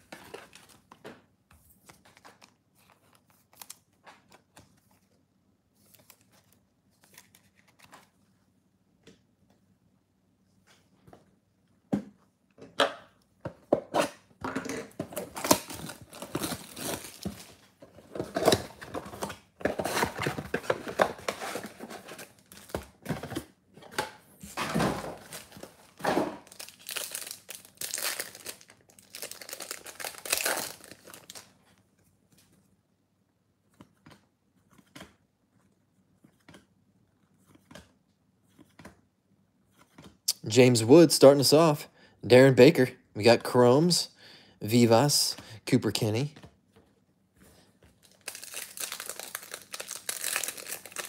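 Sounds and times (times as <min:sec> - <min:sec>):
cardboard box tearing open: 0:15.2 - 0:17.4
wrapping crinkling and tearing: 0:15.2 - 0:19.0, 0:25.2 - 0:31.6, 0:48.0 - 0:51.0.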